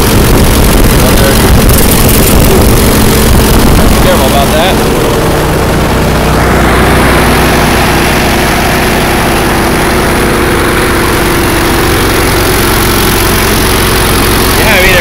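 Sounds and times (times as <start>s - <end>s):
tractor engine idling: 0.0s - 15.0s.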